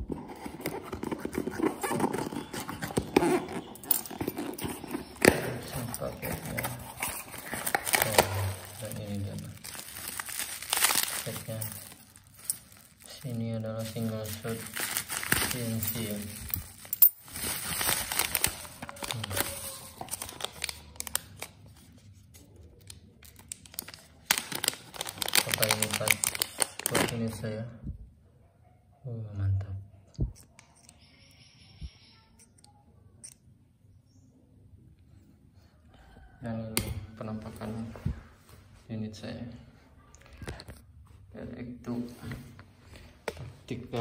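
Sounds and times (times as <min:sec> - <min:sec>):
bubble wrap crinkling: 0:00.1 - 0:27.4.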